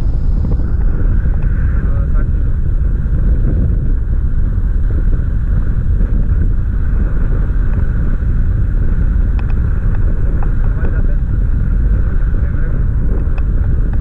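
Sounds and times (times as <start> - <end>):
wind rushing over microphone: 0.0 - 14.0.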